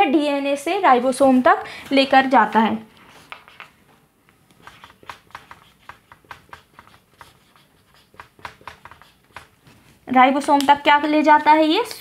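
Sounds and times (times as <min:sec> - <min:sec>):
marker writing on whiteboard: 0:03.0 - 0:03.8, 0:04.4 - 0:10.0.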